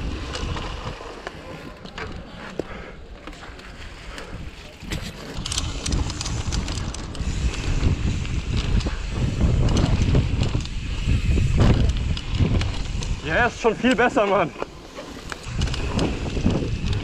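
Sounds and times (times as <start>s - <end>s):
bike rattling: 0.0s - 17.0s
tyres rolling on dirt: 0.0s - 17.0s
wind buffeting microphone: 3.9s - 17.0s.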